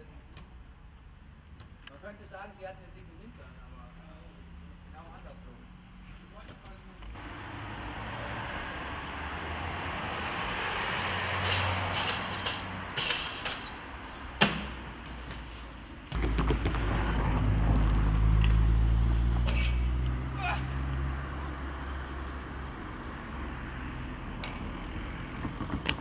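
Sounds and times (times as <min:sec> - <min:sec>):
skate wheels rolling on pavement: 0:08.8 - 0:26.0.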